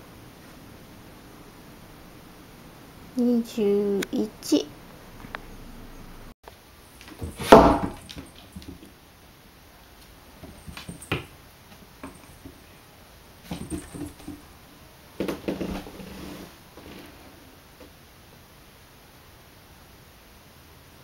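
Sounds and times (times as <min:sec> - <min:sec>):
loud thump: 0:07.2 - 0:08.8
cats scuffling on wooden floor: 0:10.0 - 0:12.7, 0:13.4 - 0:14.4.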